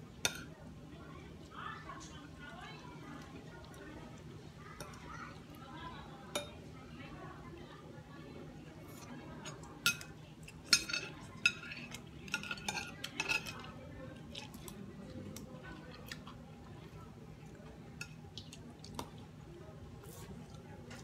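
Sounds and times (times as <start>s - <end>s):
utensils clinking on dishes: 8.9s - 14.7s
chewing: 10.4s - 19.3s.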